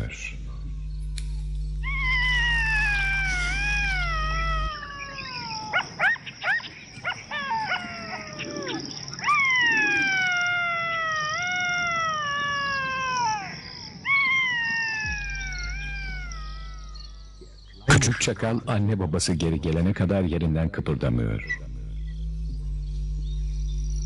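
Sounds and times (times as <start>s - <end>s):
jackal howling: 0.0s - 17.6s
jackal yipping: 1.8s - 17.1s.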